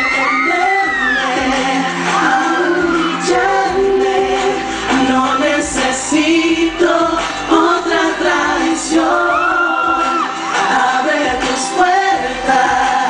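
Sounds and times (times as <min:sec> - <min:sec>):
male vocal group singing in harmony: 0:00.0 - 0:13.0.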